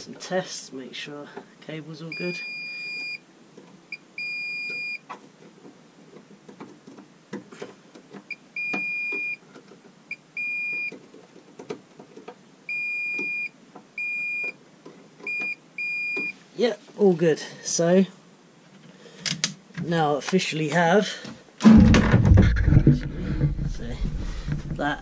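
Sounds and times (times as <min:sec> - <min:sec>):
multimeter beeping: 0:02.1 - 0:03.2.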